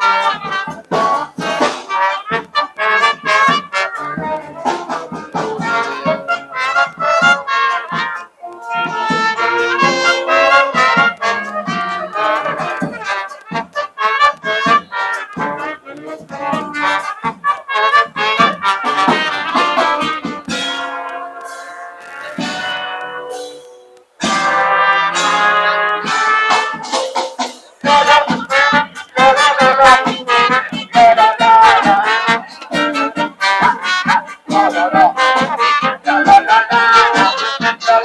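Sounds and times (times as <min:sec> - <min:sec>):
steady drum beat: 0:00.0 - 0:38.0
wind and brass instruments playing: 0:00.0 - 0:38.0.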